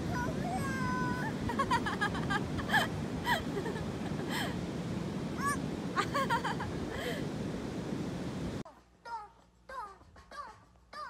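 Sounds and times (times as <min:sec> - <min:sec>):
surf rushing: 0:00.0 - 0:08.6
wind: 0:00.0 - 0:11.0.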